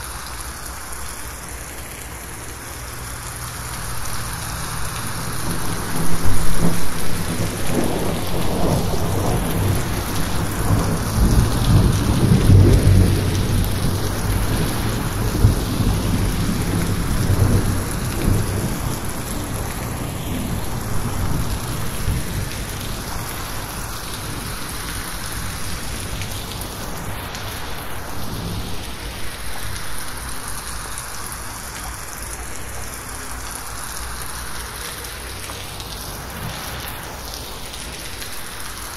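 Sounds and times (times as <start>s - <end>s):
heavy rain on a roof: 0.0s - 38.9s
thunder rumbling: 5.0s - 28.9s.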